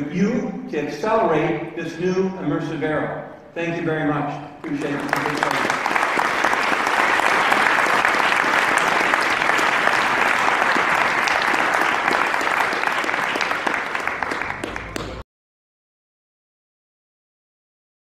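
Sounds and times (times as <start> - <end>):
large audience applauding: 4.6 - 15.2.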